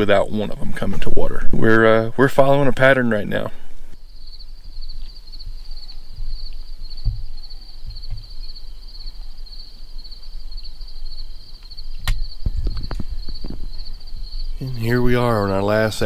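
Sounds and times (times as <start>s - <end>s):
insects trilling: 0.0s - 16.0s
soft thumps: 7.0s - 8.4s.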